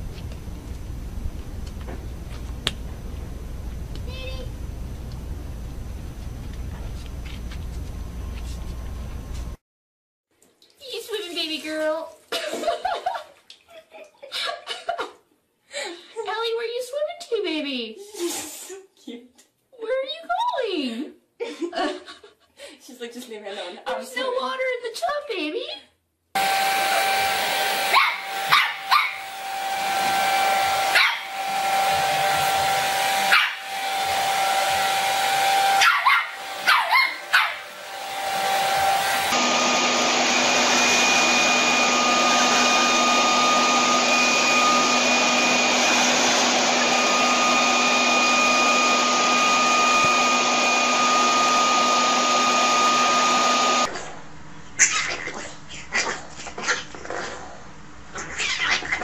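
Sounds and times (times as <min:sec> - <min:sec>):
hair dryer blowing: 0:26.4 - 0:53.9
leaf blower whining: 0:26.4 - 0:53.9
puppy barking: 0:27.8 - 0:29.3, 0:30.8 - 0:31.3, 0:33.2 - 0:33.7, 0:35.7 - 0:37.7.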